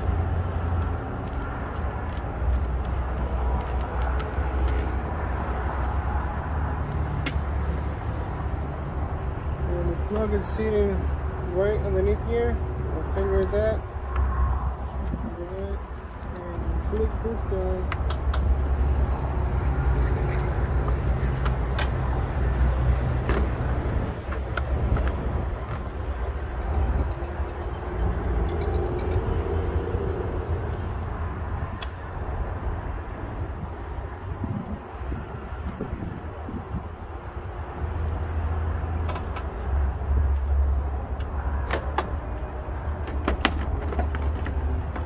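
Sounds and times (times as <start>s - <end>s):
steady low rumble: 22.1s - 38.4s.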